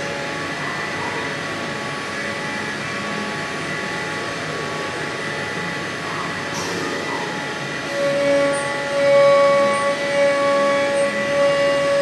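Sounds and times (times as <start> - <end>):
milling machine cutting plastic: 7.9 - 12.0.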